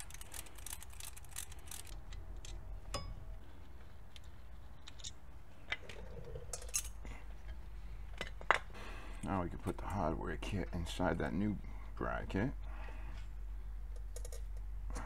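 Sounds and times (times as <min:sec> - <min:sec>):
wrench clicking and clinking: 0:00.0 - 0:03.1.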